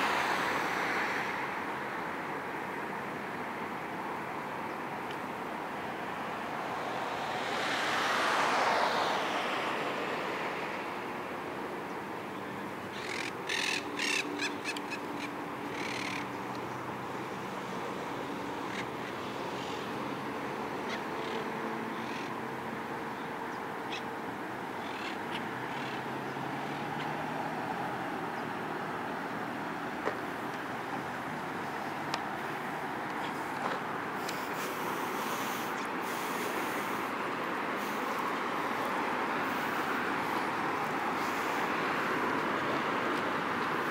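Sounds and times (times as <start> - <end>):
city traffic: 0.0 - 43.9
harsh bird calls: 12.8 - 16.5
vehicle passing close: 25.5 - 43.9.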